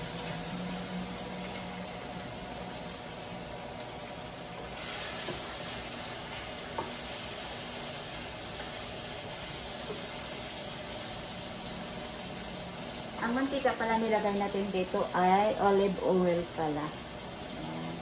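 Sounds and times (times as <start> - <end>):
tofu sizzling in oil: 0.0 - 18.0.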